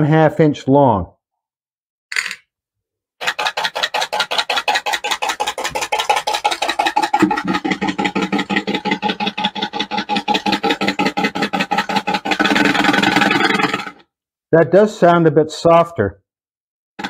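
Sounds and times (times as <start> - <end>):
fast metallic knocking: 3.2 - 14.0.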